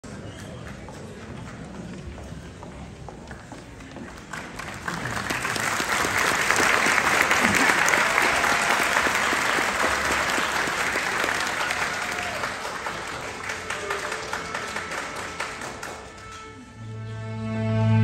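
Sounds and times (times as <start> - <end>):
audience applauding: 3.8 - 16.7.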